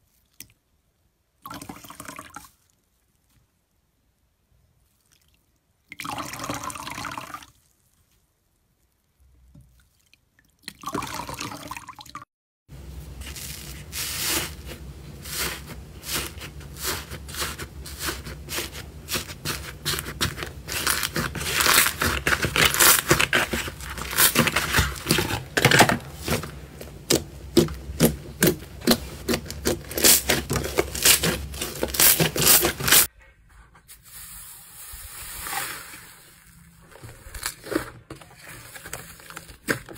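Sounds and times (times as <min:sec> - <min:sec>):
wet slime squelch: 0:00.0 - 0:06.1, 0:07.2 - 0:11.0, 0:13.2 - 0:25.5
dry slime crackling and crunching: 0:13.2 - 0:25.4.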